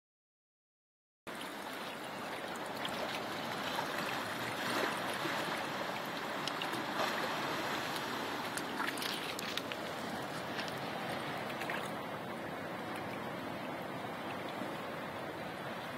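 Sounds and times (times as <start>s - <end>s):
sea washing among rocks: 2.4s - 14.8s.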